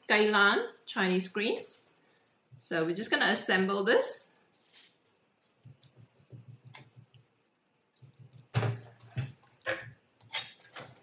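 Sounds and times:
spatula scraping and tapping a pan: 8.0 - 11.0.

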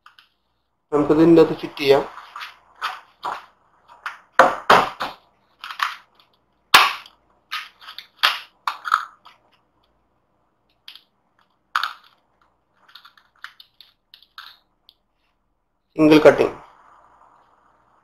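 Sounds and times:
handling crackles and clicks: 10.6 - 15.0.

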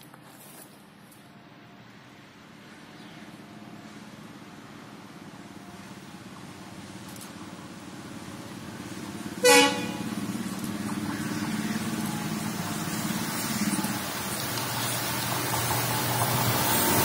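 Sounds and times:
locomotive engine hum: 0.0 - 17.0
locomotive horn blast: 9.4 - 10.5.

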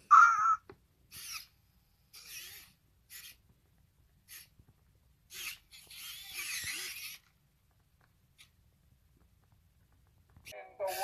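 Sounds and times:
robot dog toy harsh bursts: 1.1 - 3.4, 5.3 - 7.2.

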